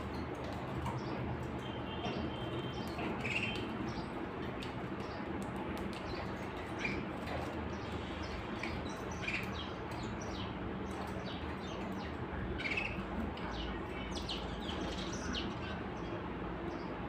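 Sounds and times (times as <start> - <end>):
canaries chirping: 0.0 - 17.0
low background noise: 0.0 - 17.0.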